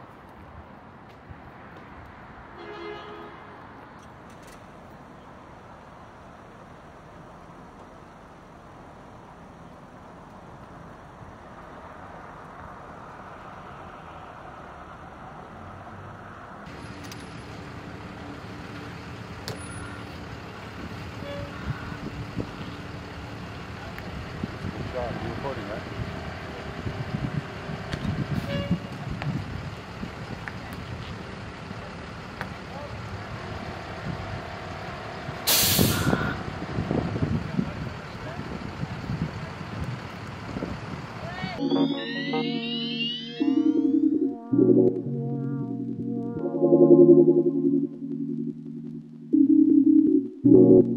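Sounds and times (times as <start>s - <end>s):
vehicle engines rumbling: 0.0s - 42.9s
street noise: 0.0s - 46.6s
vehicle horn toot: 2.6s - 3.5s, 21.2s - 21.8s, 28.4s - 28.9s.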